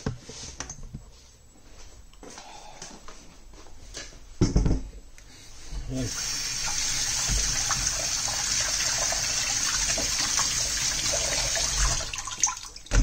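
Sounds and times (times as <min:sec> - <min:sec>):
tap water splashing on potatoes: 0:06.6 - 0:13.0.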